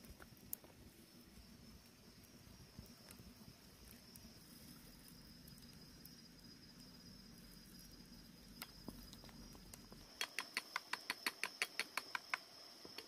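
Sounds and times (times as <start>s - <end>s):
high insect drone: 0.0s - 13.0s.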